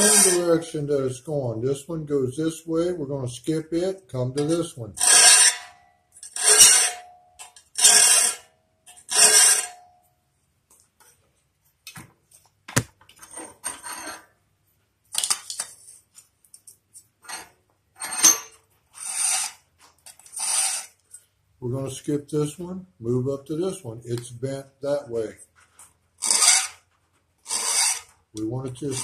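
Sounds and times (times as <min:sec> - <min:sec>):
hand file rasping on saw tooth: 0:05.0 - 0:05.6, 0:19.0 - 0:19.6, 0:20.2 - 0:21.0, 0:26.2 - 0:26.8, 0:27.4 - 0:28.2.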